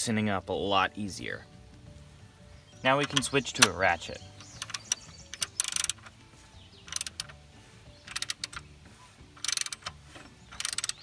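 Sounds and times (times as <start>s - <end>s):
socket ratchet clicking: 3.0s - 3.8s, 4.4s - 6.2s, 6.8s - 7.4s, 8.0s - 8.7s, 9.4s - 11.0s.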